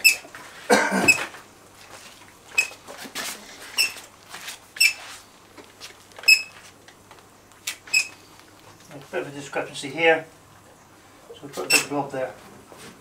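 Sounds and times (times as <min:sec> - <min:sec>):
caulking gun squeaking: 0:02.5 - 0:02.8, 0:03.7 - 0:04.1, 0:04.8 - 0:05.0, 0:06.2 - 0:06.6, 0:07.7 - 0:08.3, 0:11.6 - 0:12.0.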